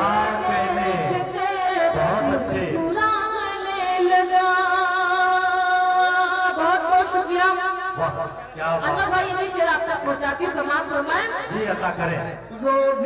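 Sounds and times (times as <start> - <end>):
woman singing into a microphone: 0.0 - 7.9.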